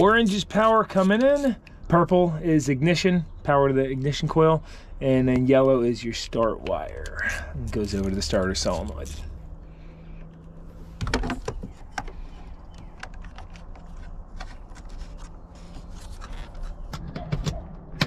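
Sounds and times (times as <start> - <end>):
low steady hum: 0.0 - 17.2.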